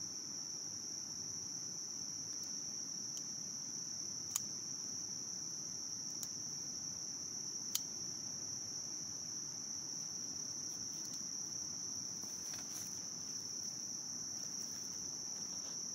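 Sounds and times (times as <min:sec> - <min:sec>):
insects shrilling: 0:09.5 - 0:15.9.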